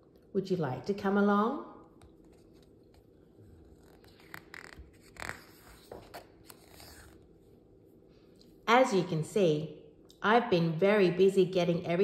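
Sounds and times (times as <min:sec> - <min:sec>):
book page turning: 0:02.0 - 0:07.3.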